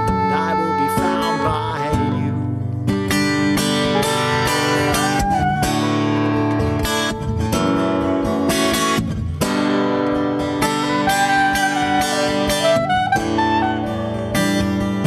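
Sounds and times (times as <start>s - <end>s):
soprano saxophone melody: 0.0s - 2.7s, 3.4s - 7.6s, 10.6s - 15.0s
acoustic guitar strumming: 0.0s - 15.0s.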